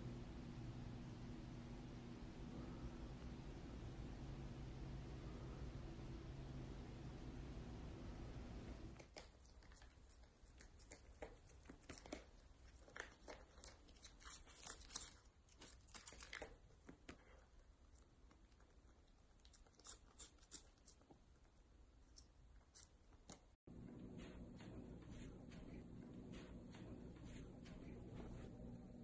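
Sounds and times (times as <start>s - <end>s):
cats licking and smacking: 9.0s - 21.6s.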